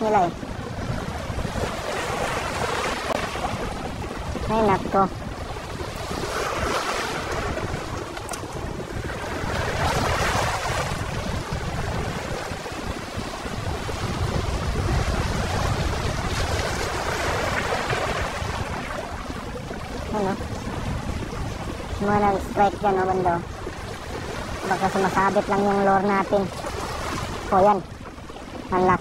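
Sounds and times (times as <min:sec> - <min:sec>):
waves washing over rocks: 0:00.0 - 0:29.0
wind rumbling on microphone: 0:00.0 - 0:29.0.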